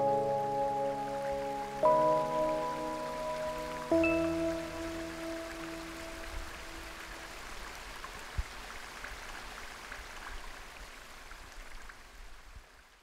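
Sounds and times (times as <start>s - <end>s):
held music notes: 0.0s - 7.0s
stream water running over rocks: 0.0s - 13.0s
water drips: 0.1s - 12.1s.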